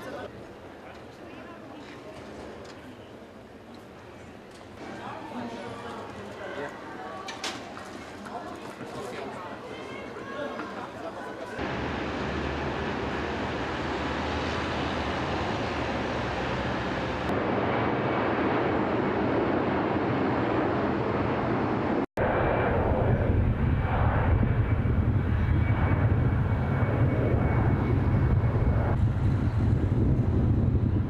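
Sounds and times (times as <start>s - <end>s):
jet engine rushing: 11.6s - 31.0s.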